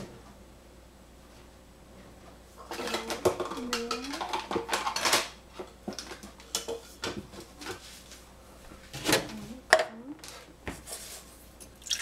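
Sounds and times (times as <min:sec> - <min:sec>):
kitchen items clicking and knocking: 0:02.6 - 0:07.8
kitchen items clattering: 0:02.6 - 0:08.0.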